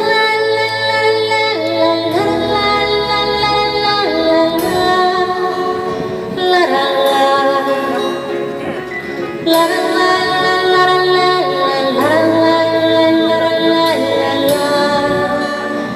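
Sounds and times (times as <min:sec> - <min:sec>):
acoustic guitar: 0:00.0 - 0:15.9
woman singing a ballad: 0:00.0 - 0:15.9.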